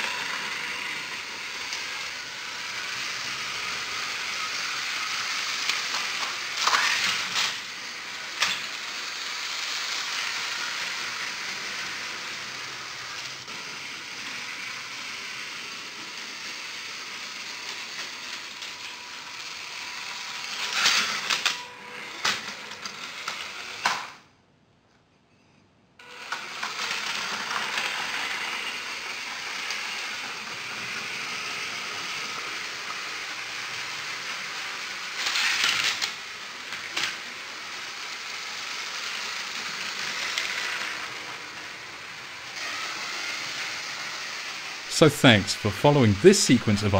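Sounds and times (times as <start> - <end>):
toy train motors running: 0.0 - 24.2, 26.0 - 46.9
plastic wheels rattling on track: 5.0 - 7.6, 31.8 - 42.1.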